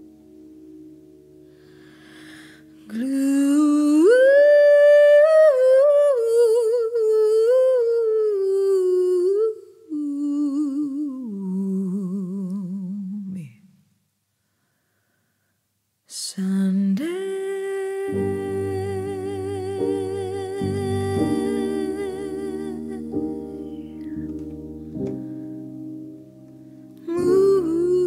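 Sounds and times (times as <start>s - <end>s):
woman singing wordless melody: 1.9s - 13.9s, 16.1s - 25.3s, 26.9s - 28.0s.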